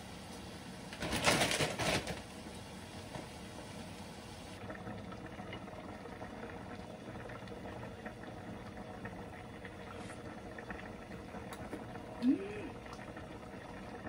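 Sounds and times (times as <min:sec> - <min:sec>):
stew bubbling with small pops: 0:04.6 - 0:14.0.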